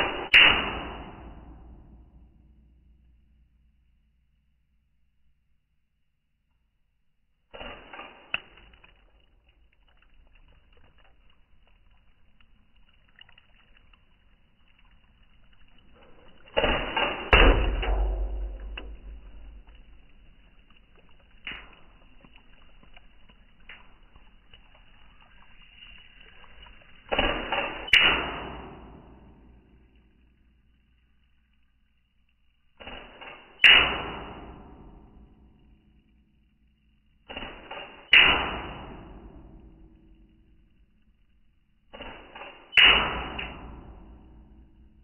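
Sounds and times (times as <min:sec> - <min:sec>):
air gun shots: 0:00.0 - 0:02.4, 0:07.5 - 0:08.8, 0:16.5 - 0:20.0, 0:27.1 - 0:29.5, 0:32.8 - 0:35.2, 0:37.3 - 0:39.5, 0:41.9 - 0:44.3.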